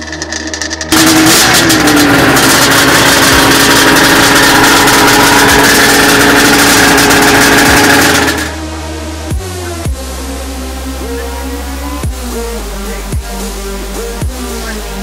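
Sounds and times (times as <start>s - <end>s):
snowmobile engine running loud: 0.0s - 8.7s.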